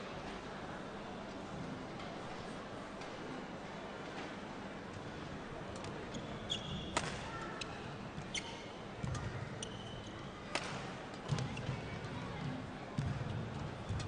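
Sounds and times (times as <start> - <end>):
shoes squeaking on court: 6.1 - 7.0, 8.2 - 10.1
racket striking shuttlecock: 6.9 - 7.2.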